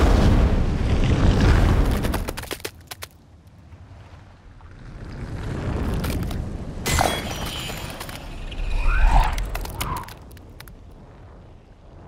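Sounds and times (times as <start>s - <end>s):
crackling: 7.9s - 10.9s.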